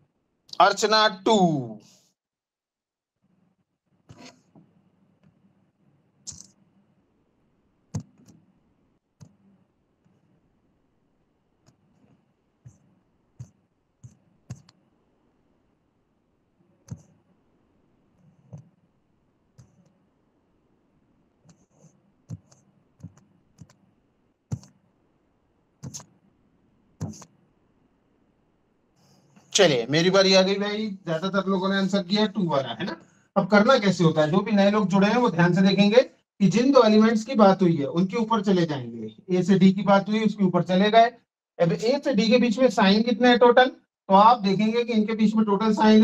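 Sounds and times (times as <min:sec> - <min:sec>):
computer mouse clicks: 0:06.3 - 0:06.6, 0:07.9 - 0:08.5, 0:09.2 - 0:09.4, 0:11.6 - 0:14.8, 0:16.8 - 0:17.2, 0:19.6 - 0:20.0, 0:21.4 - 0:23.8, 0:24.5 - 0:24.8, 0:25.8 - 0:26.2, 0:27.0 - 0:27.4.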